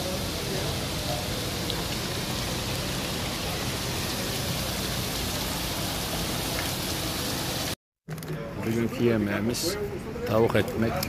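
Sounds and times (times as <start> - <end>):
fountain water splashing into basin: 0.0 - 7.8.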